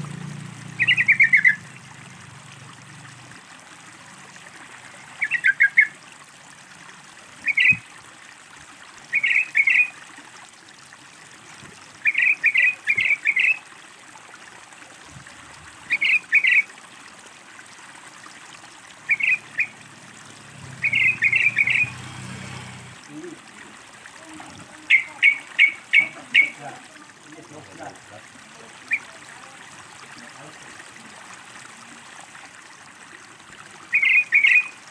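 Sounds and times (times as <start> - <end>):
running water trickling: 0.0 - 34.9
bird chattering calls: 0.8 - 1.6, 5.2 - 5.9, 9.1 - 9.9, 19.1 - 19.7, 20.8 - 21.9, 24.9 - 26.6, 33.9 - 34.7.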